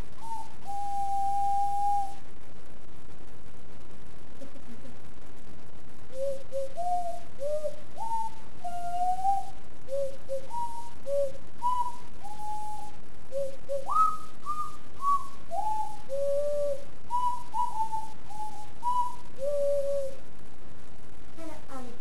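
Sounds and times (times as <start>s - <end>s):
ocarina melody: 0.0s - 2.2s, 6.1s - 20.2s.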